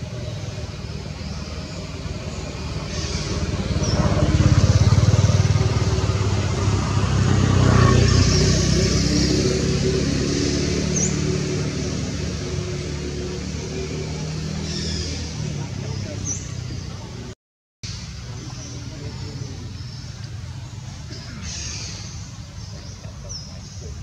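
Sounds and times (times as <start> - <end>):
vehicle engine passing: 0.0 - 24.0.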